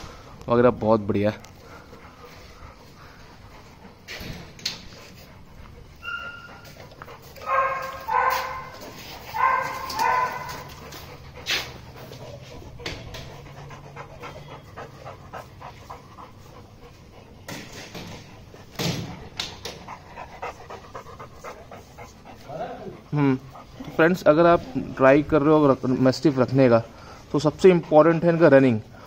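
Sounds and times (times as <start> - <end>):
dog panting: 0.0 - 29.0
dog barking: 7.4 - 10.8.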